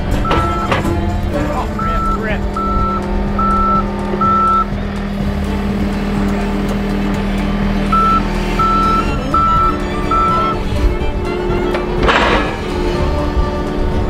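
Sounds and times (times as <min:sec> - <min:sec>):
loader engine running: 0:00.0 - 0:14.0
reversing alarm beeps: 0:00.2 - 0:00.8, 0:01.7 - 0:04.8, 0:07.9 - 0:10.6.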